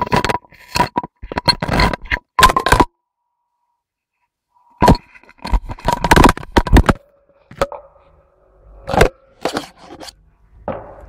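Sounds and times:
camera handling knocks and scrapes: 8.9s - 10.2s.

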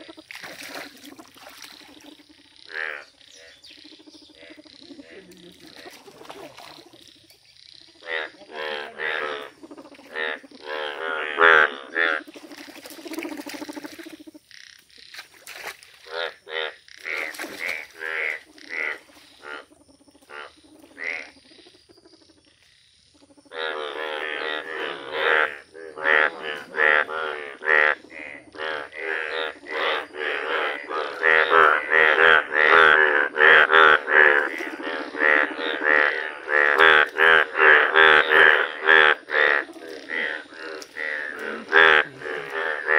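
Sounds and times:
frogs croaking: 0.0s - 42.9s.

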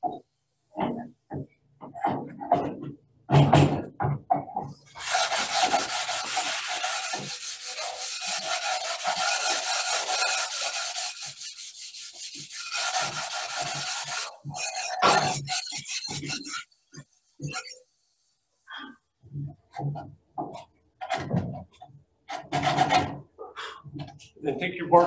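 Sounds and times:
sanding scrape on oar blade: 4.9s - 17.8s.

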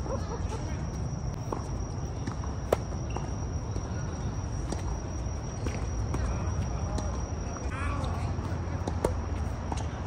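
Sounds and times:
high-pitched whine: 0.0s - 10.0s.

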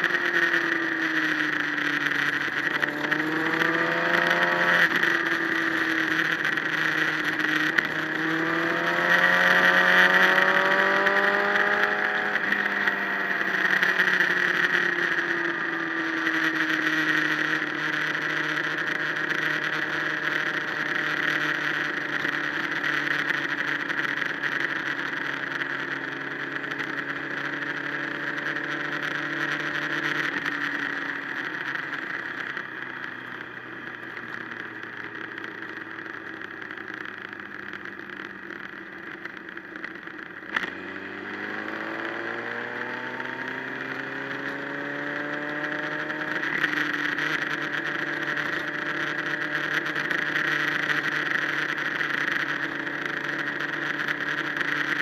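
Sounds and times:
motorcycle engine: 0.0s - 55.0s.

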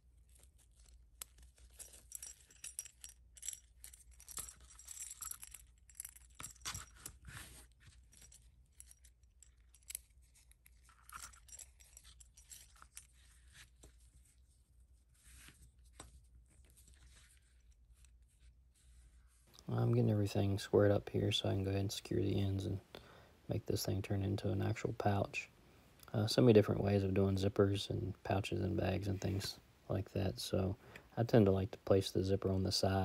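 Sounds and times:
fabric rustling: 3.3s - 19.5s.

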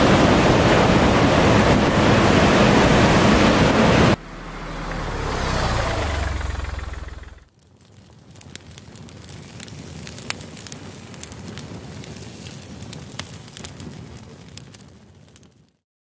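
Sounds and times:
fire popping: 0.0s - 15.8s
wood fire crackling: 0.0s - 15.8s.

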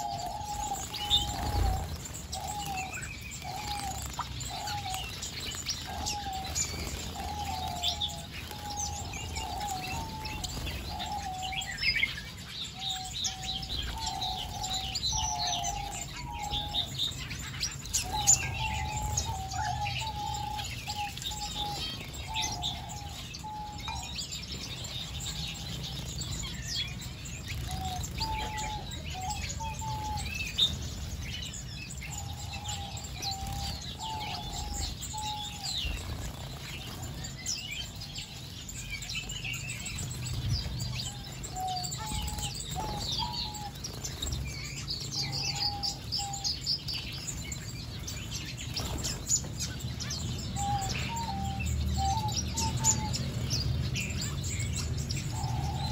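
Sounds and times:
wings fluttering: 0.0s - 12.2s
lower-pitched bird call: 0.0s - 36.2s, 40.6s - 46.7s, 50.0s - 55.9s
small birds chirping: 0.0s - 55.9s.

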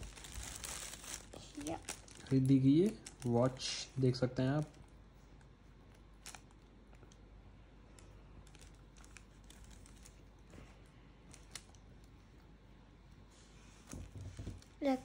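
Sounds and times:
light clicks of packaging handled: 11.3s - 12.2s.

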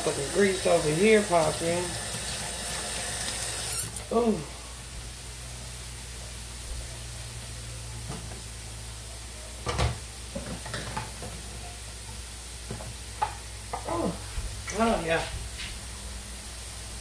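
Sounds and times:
patties sizzling in grease: 0.0s - 9.0s.

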